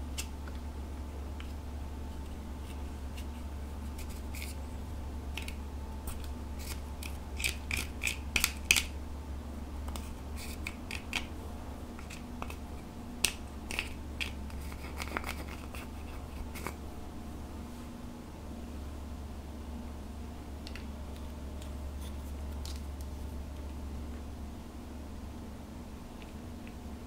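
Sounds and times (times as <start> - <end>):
spatula scraping eyeshadow: 4.0 - 4.6.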